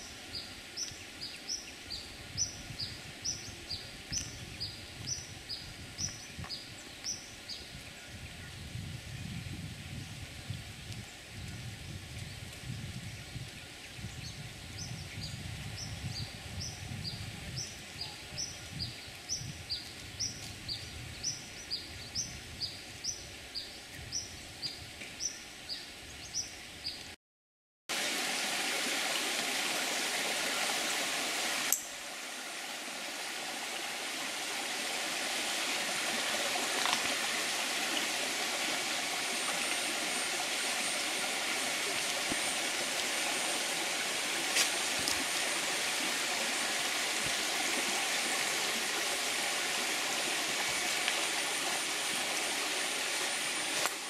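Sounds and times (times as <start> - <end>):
stream trickling over rocks: 27.9 - 54.0.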